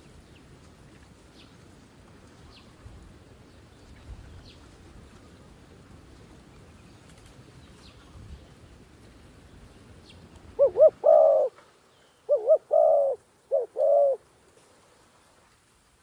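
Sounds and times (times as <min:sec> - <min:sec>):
dove cooing: 0:10.6 - 0:11.6, 0:12.3 - 0:14.2.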